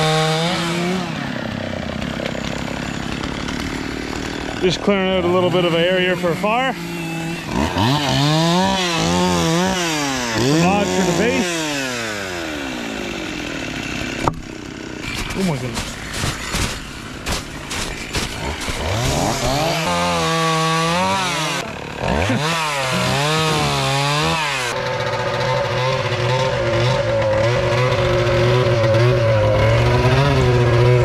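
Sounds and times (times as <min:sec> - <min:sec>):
chainsaw revving and cutting log: 0:00.0 - 0:31.0
snowmobile engine idling: 0:01.3 - 0:07.8, 0:10.0 - 0:20.2, 0:24.7 - 0:31.0
footsteps crunching in snow: 0:15.0 - 0:19.9.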